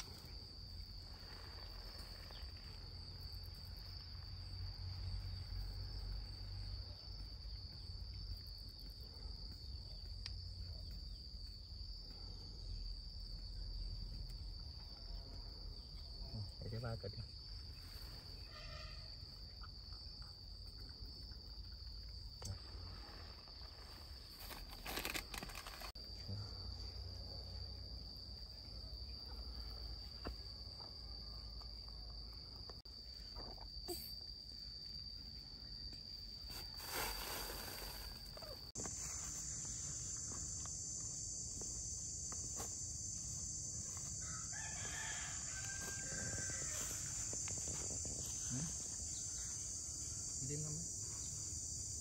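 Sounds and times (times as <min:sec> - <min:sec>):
insects buzzing: 0:00.0 - 0:52.0
rooster crowing: 0:44.2 - 0:47.3.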